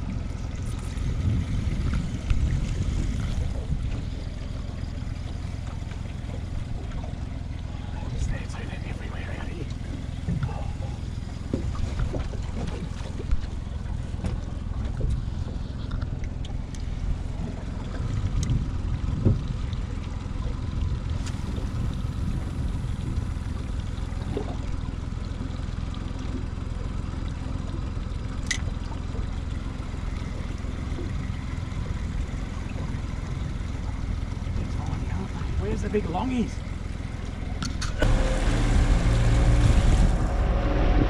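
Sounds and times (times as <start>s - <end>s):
wind rumble on microphone: 0.0s - 4.7s, 5.4s - 25.1s, 28.4s - 41.0s
water lapping against boat hull: 0.0s - 41.0s.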